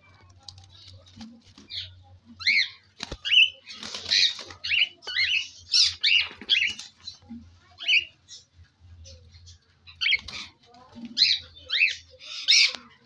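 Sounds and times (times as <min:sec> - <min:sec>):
cockatiels chirping: 0:01.7 - 0:08.5.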